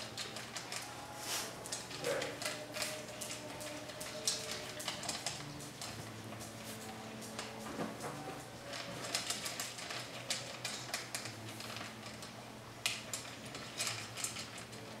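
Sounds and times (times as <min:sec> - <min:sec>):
puppy eating from a metal bowl: 0:00.0 - 0:15.0.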